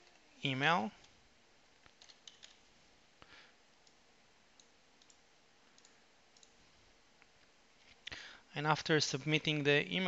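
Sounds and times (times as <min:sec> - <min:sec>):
computer mouse and keyboard clicks: 0:01.8 - 0:02.6, 0:04.6 - 0:06.6.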